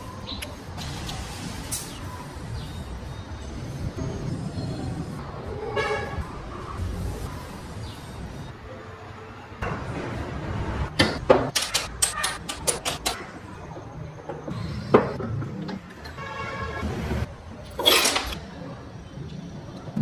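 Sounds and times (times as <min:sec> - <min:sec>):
wooden parts clicking and knocking: 0:11.0 - 0:13.2.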